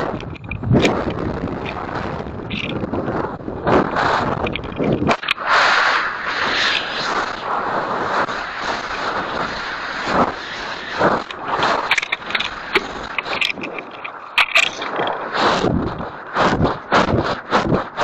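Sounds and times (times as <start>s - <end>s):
airframe rattling and clicking: 0.0s - 1.8s, 2.4s - 2.9s, 4.4s - 5.4s, 11.2s - 15.2s
wind rushing over camera: 0.0s - 18.0s.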